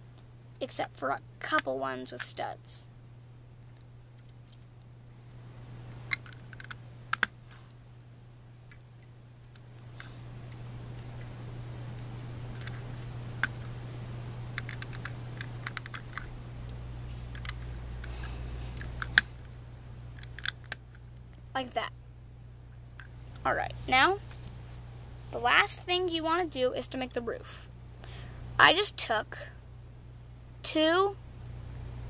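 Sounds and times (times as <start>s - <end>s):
steady low hum: 0.0s - 32.0s
plastic bricks clicking together: 14.6s - 16.3s.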